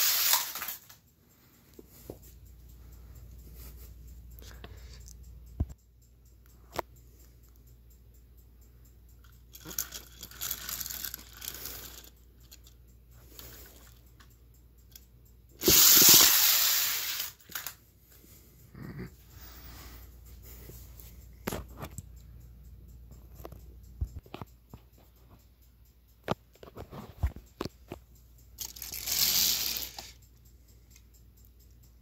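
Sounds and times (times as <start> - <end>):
plastic pieces rustling and clicking: 0.0 - 1.0, 9.5 - 12.7, 15.6 - 17.8, 28.6 - 30.2
toy trains rattling on track: 0.0 - 1.0, 9.3 - 15.0, 15.6 - 17.8, 28.6 - 30.3.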